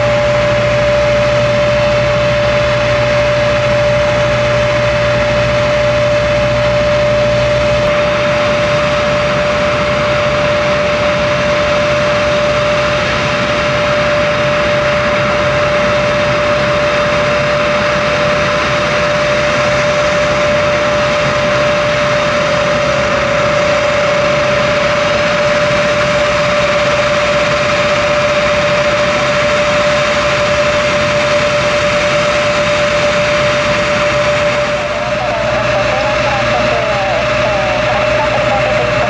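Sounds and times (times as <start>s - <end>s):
jet engines rushing with whine: 0.0s - 39.0s.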